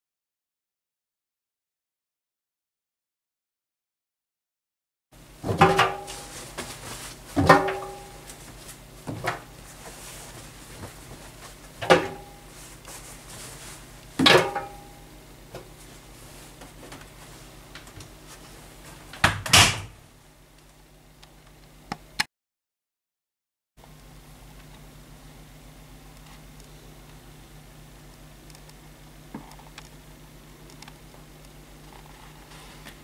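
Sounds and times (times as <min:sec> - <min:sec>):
washing machine door shutting: 0:05.4 - 0:06.7, 0:07.3 - 0:08.3, 0:11.8 - 0:12.3, 0:14.2 - 0:14.8, 0:19.2 - 0:20.0
knocks against washing machine drum: 0:07.4 - 0:08.0.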